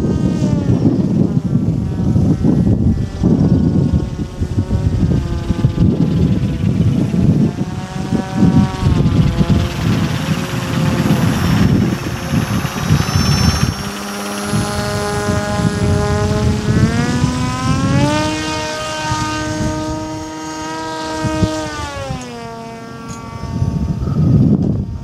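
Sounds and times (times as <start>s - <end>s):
model aircraft motor and propeller: 0.0s - 25.0s
uneven low rumble: 0.6s - 20.4s.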